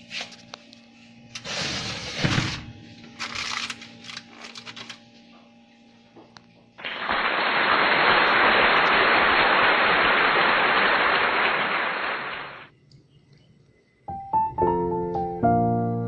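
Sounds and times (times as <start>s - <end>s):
faint steady hum: 0.0s - 16.0s
loud steady hiss: 6.8s - 12.8s.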